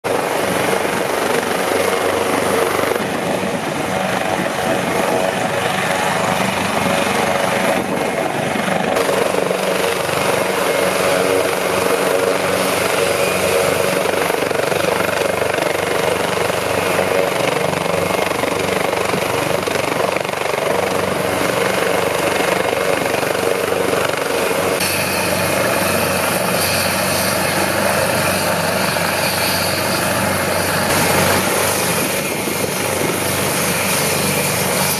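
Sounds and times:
helicopter turbine and rotor noise: 0.0 - 34.9.

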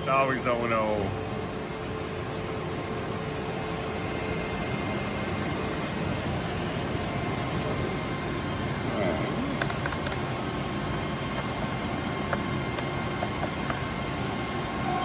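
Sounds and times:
machinery hum: 0.0 - 15.0
control panel key clicks: 9.6 - 10.2, 11.3 - 13.8.

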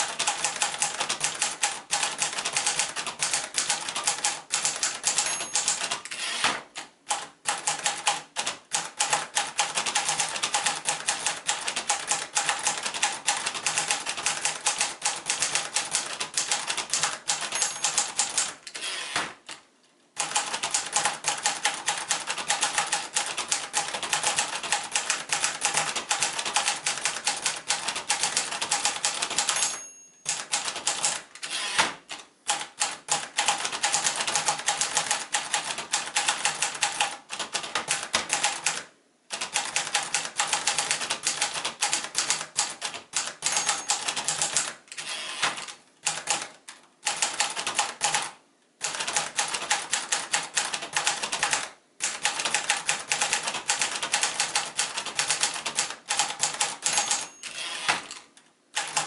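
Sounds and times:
typewriter keys clacking: 0.0 - 6.2, 6.8 - 18.6, 20.2 - 31.5, 39.4 - 46.5, 47.1 - 58.2, 58.8 - 59.0
typewriter bell ring: 4.7 - 6.3, 17.3 - 18.4, 29.4 - 30.6, 43.4 - 44.6, 56.4 - 57.9.

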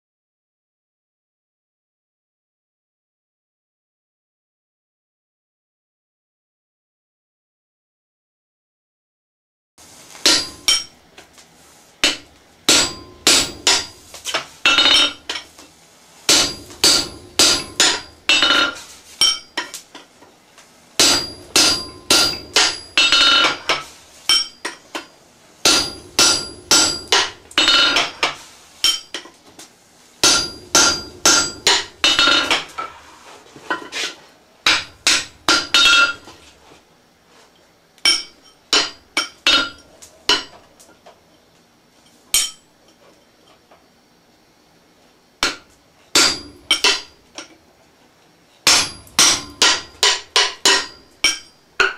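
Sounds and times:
hammer striking steel on anvil: 10.2 - 11.0, 12.0 - 15.4, 16.3 - 19.8, 21.0 - 29.2, 30.2 - 32.9, 34.7 - 36.4, 38.0 - 40.6, 42.4 - 42.7, 45.4 - 47.5, 48.7 - 51.9.

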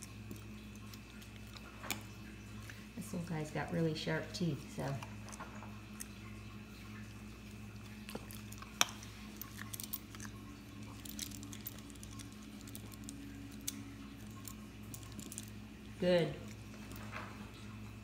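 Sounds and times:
puppy chewing treat: 0.0 - 3.2, 4.6 - 17.8.

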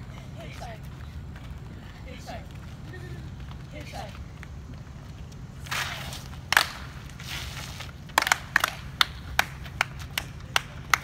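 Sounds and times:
shoe scuff: 5.6 - 6.4, 7.0 - 8.0
group clapping and slapping: 6.4 - 7.0, 8.1 - 11.0.

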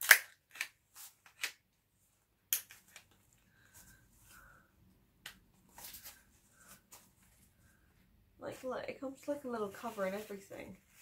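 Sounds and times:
umbrella fabric rustling: 8.4 - 11.0.

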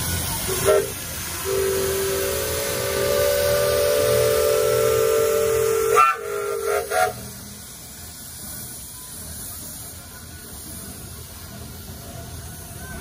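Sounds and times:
steam whistle blasts: 0.5 - 7.4.

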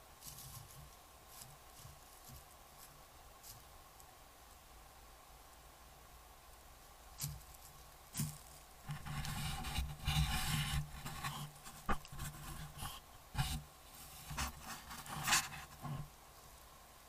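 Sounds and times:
fur brushing over camera: 8.9 - 16.1.

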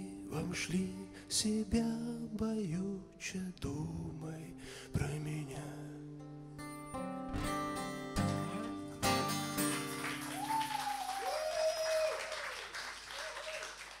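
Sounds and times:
acoustic guitars strumming: 0.0 - 10.3
audience applauding: 8.2 - 14.0.

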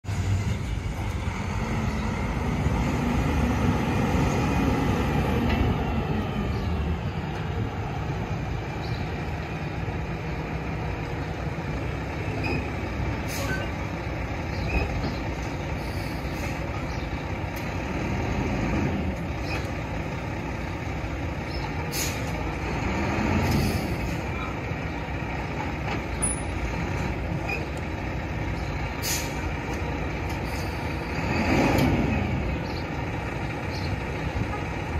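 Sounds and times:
diesel truck engine revving: 0.0 - 34.9
short air hisses: 21.9 - 22.3, 29.0 - 29.4.

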